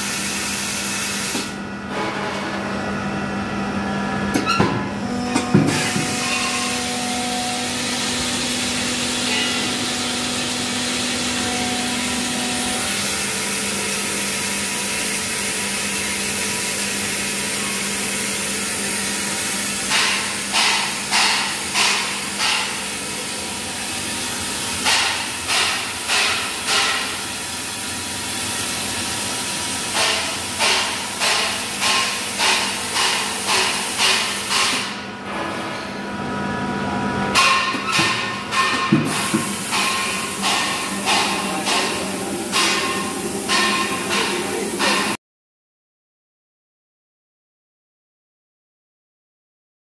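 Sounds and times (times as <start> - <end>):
rhythmic air blasts: 15.6 - 35.0, 38.5 - 45.2
compressed air hissing: 39.1 - 45.2.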